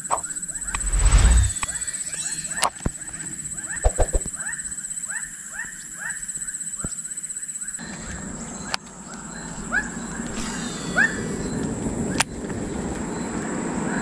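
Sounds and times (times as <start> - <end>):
high-pitched whine: 0.0 - 5.0
sharp click: 0.6 - 2.7
animal calling: 9.7 - 11.6.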